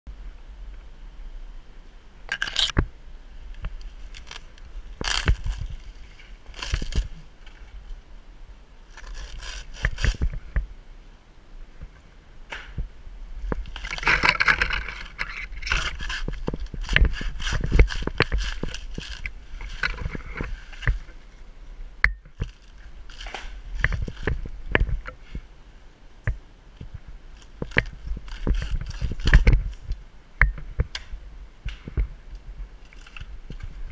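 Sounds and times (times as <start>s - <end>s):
dry palm fibre crackling and tearing: 2.3s - 2.8s, 3.5s - 7.9s, 8.9s - 10.5s, 13.5s - 21.2s, 22.3s - 25.0s, 27.3s - 30.0s, 32.8s - 33.7s.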